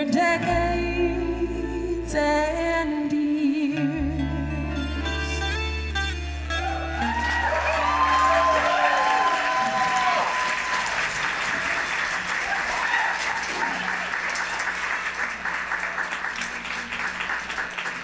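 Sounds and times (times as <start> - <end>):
whoops: 6.5 - 14.8
audience applauding and cheering: 6.5 - 18.0.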